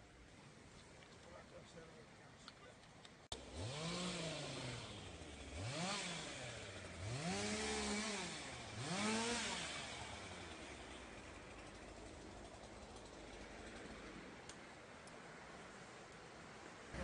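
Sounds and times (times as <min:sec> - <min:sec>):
small engine revving: 0:03.3 - 0:14.3.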